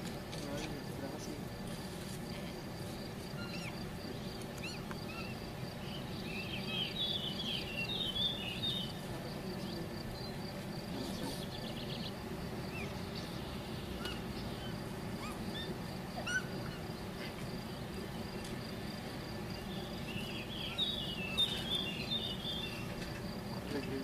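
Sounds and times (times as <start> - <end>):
faint insect buzz: 0.0 - 24.0
outdoor ambient hiss: 0.0 - 24.0
bird chirping and singing: 3.4 - 9.0, 19.6 - 23.0.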